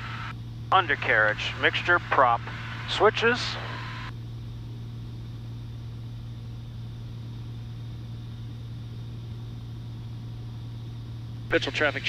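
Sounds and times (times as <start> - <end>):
airplane engine drone in flight: 0.0 - 12.0.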